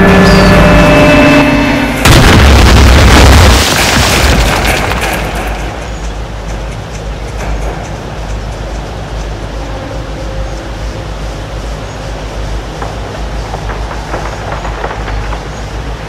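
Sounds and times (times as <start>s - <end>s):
explosion boom and rumble: 1.9s - 6.7s, 12.8s - 16.0s.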